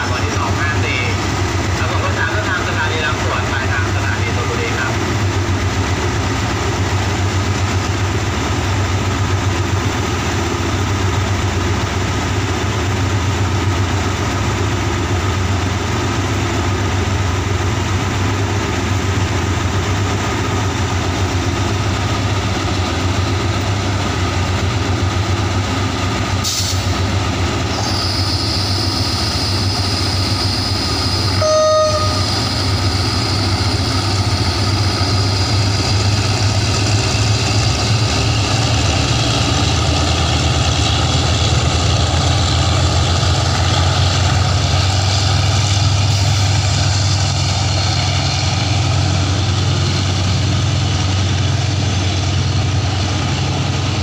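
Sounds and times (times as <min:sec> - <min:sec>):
locomotive diesel engine droning: 0:00.0 - 0:54.0
brief sharp tone: 0:27.8 - 0:33.4.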